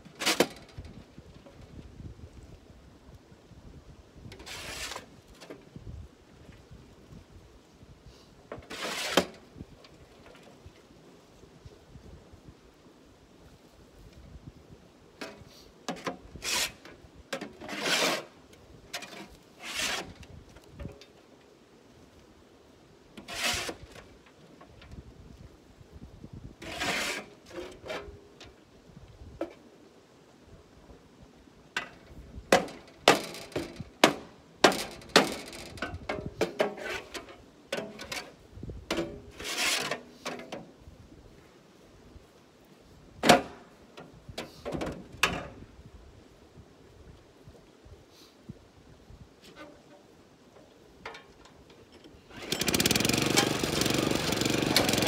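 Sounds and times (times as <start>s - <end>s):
rough rasping scrapes: 4.4s - 5.1s, 8.7s - 9.3s, 16.4s - 16.9s, 17.6s - 18.3s, 19.1s - 20.2s, 23.2s - 24.0s, 26.6s - 28.0s, 36.6s - 37.3s, 39.3s - 40.0s
sharp knocks and clatters: 31.8s - 37.2s.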